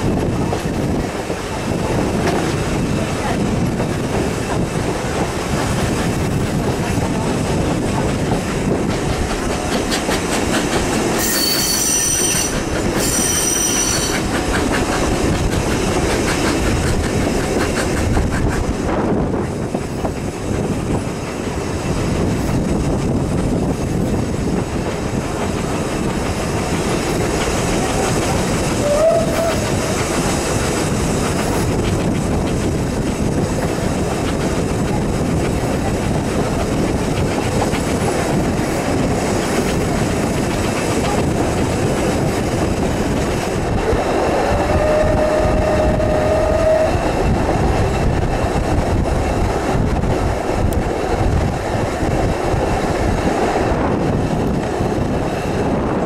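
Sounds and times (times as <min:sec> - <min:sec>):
wheels clicking over rail joints: 0:00.0 - 0:45.8
steam train rumbling: 0:00.0 - 0:56.0
locomotive whistle blasts: 0:11.2 - 0:14.1, 0:28.8 - 0:29.7, 0:44.5 - 0:47.0.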